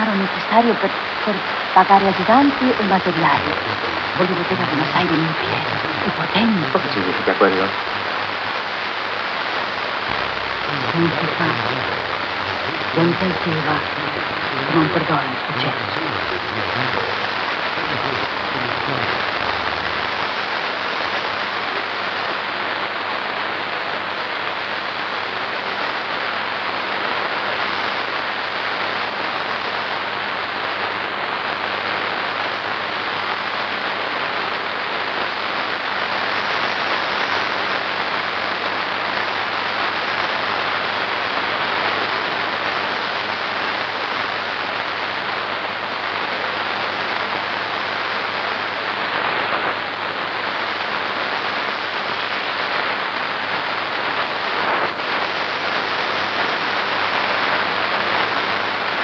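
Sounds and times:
steady hiss: 0.0s - 59.0s.

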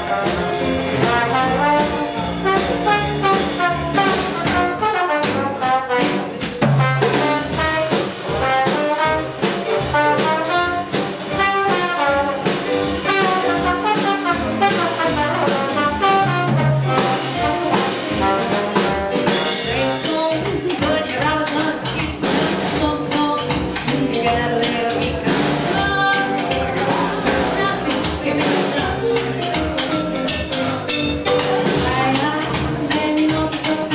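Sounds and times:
trombone melody: 0.0s - 20.2s
digital piano: 0.0s - 33.9s
drum kit swing beat: 0.0s - 33.9s.

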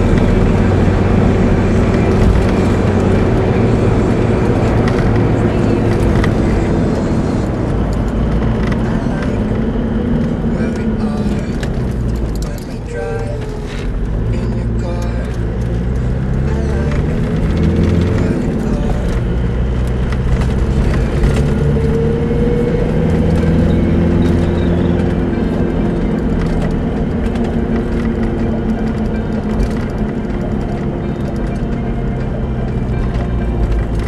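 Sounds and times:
car engine running at low speed: 0.0s - 34.0s
tyre and road noise: 0.0s - 34.0s.

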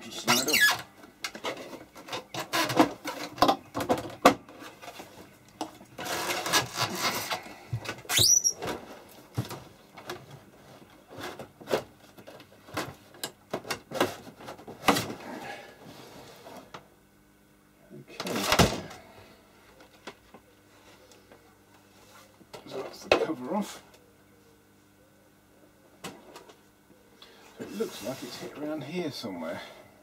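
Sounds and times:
short rising squeak: 8.1s - 8.6s.

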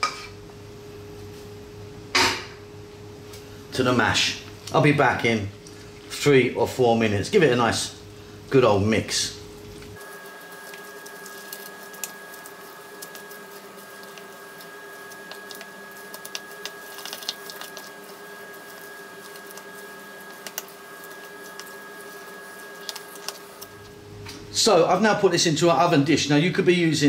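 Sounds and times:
steady background hum: 0.0s - 27.0s
spoon squishing mashed potato: 9.8s - 23.8s.

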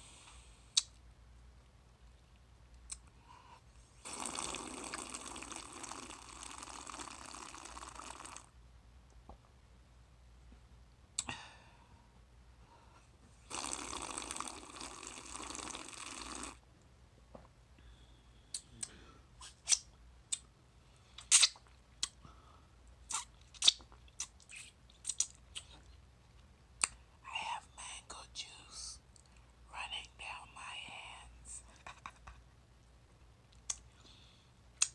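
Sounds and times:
mouth clicks and lip smacks: 0.7s - 1.1s, 2.7s - 3.2s, 18.5s - 20.5s, 21.1s - 22.2s, 23.0s - 26.0s, 26.8s - 27.0s, 33.5s - 33.9s
slurping through a straw: 4.0s - 8.5s, 13.4s - 16.6s.

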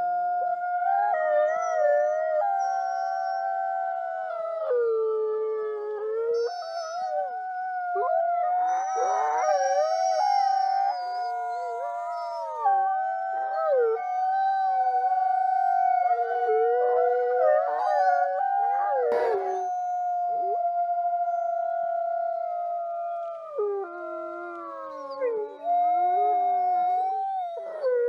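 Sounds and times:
wolves howling in chorus: 0.0s - 28.0s
wolf yips: 19.1s - 19.6s.

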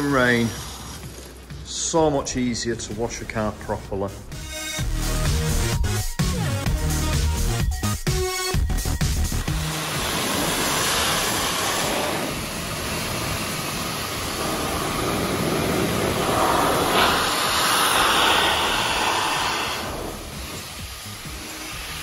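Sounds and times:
air blower rushing hiss: 0.0s - 2.2s, 8.2s - 22.0s.

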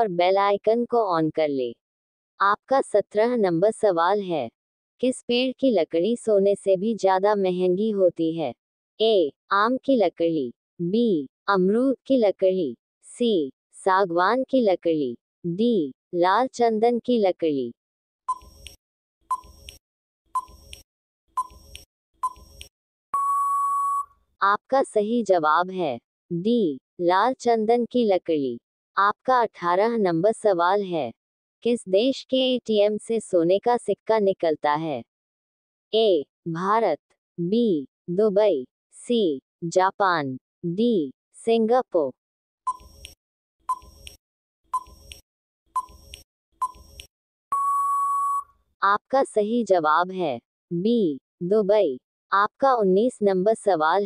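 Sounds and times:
short timer beeps: 18.3s - 19.8s, 20.4s - 20.8s, 21.4s - 22.6s, 23.2s - 24.1s, 42.7s - 44.2s, 44.8s - 45.1s, 45.8s - 48.5s
long steady beep: 23.1s - 24.1s, 47.5s - 48.5s
timer ticks ringing: 45.8s - 46.8s.

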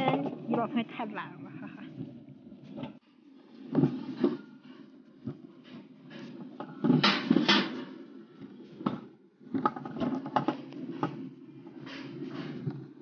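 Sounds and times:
sled wheels rumbling on metal track: 0.0s - 13.0s
clacks and knocks: 3.6s - 13.0s.

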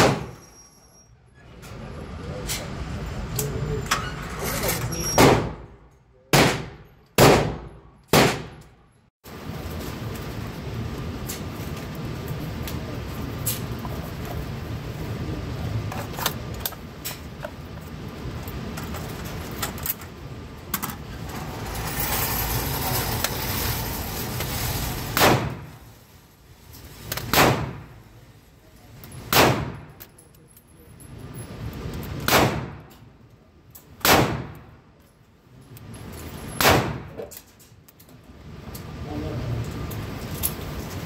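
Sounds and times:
gunshots with echo: 6.3s - 8.6s.

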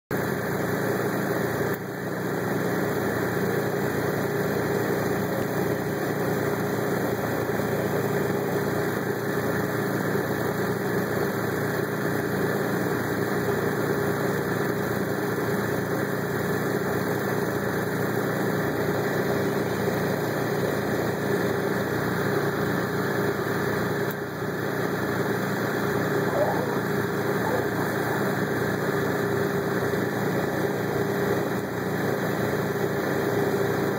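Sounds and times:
machine drone with steady tone: 0.1s - 33.9s.

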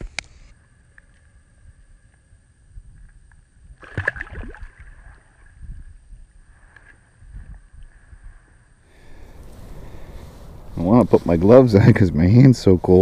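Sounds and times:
fish splashing into water: 3.8s - 5.4s.

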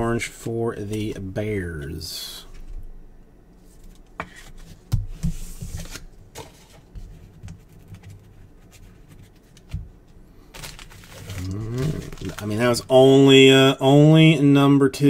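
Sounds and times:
card stock rustling: 10.5s - 13.0s.

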